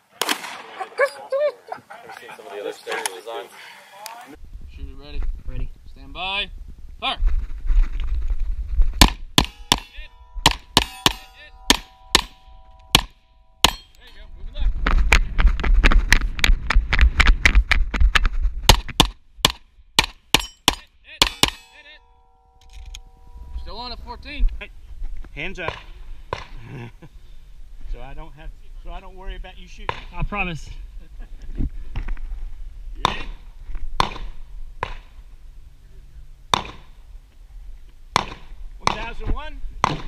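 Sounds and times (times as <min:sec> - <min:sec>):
sharp cracking impacts: 0:08.9 - 0:14.1, 0:14.8 - 0:22.0
steel plates ringing: 0:09.4 - 0:14.3, 0:20.3 - 0:24.2
footsteps on dirt: 0:14.6 - 0:19.0.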